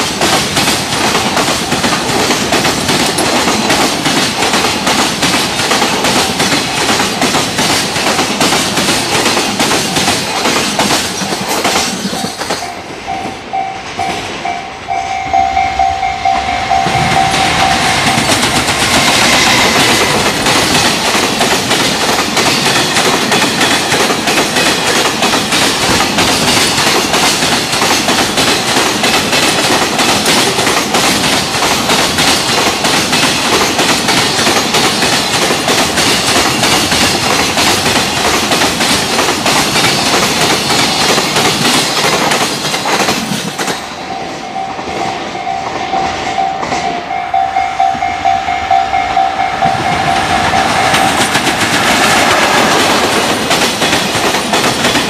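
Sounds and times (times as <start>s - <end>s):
train wheels clattering over rail joints: 0.0s - 12.7s, 16.9s - 43.9s, 49.7s - 55.0s
steady ringing tone: 12.6s - 20.2s.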